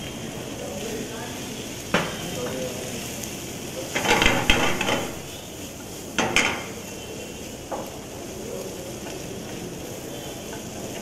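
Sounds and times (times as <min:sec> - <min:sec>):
vegetables sizzling in a frying pan: 0:00.0 - 0:11.0
pan clattering: 0:04.0 - 0:05.3.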